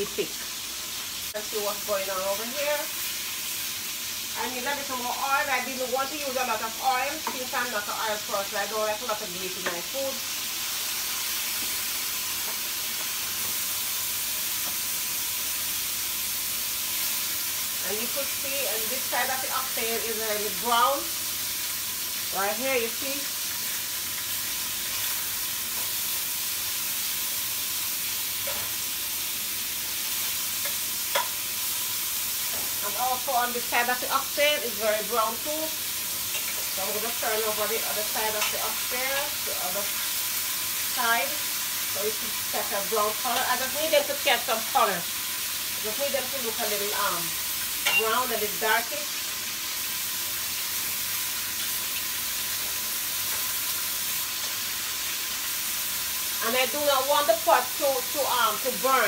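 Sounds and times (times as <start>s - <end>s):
meat sizzling in a frying pan: 0.0s - 59.0s.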